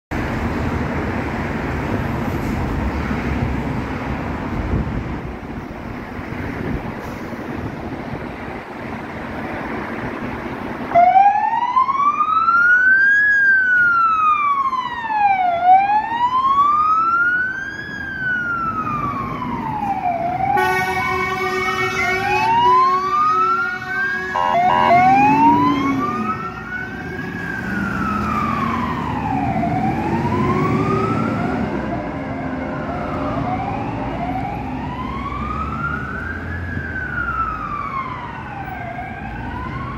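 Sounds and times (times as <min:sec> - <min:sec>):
fire engine siren wailing: 0:10.9 - 0:39.9
two-tone air horn: 0:20.6 - 0:22.5, 0:24.2 - 0:25.3
truck engine: 0:21.8 - 0:29.0.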